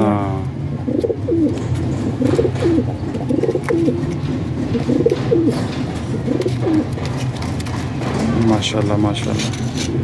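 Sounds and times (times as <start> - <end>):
pigeon cooing: 0.7 - 7.0.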